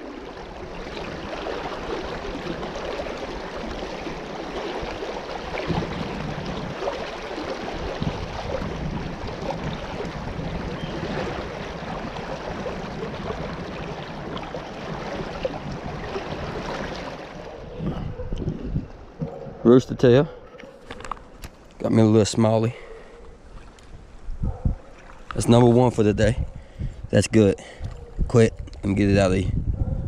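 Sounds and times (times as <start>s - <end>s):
river water rushing: 0.0s - 17.8s.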